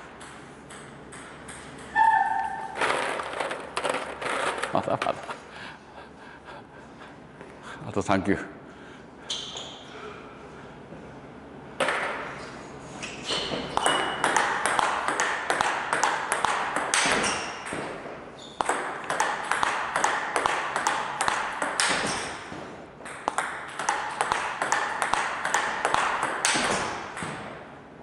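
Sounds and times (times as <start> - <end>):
table tennis ball clicking: 13.8 - 17.8, 23.0 - 27.3.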